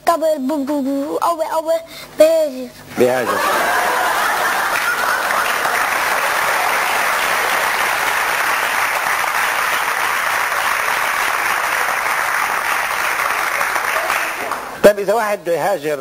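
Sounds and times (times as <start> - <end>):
audience applauding: 3.2 - 14.8.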